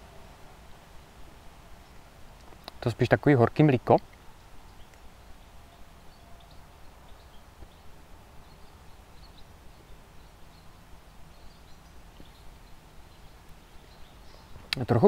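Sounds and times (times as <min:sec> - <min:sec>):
faint bird chirps: 0:04.0 - 0:15.0.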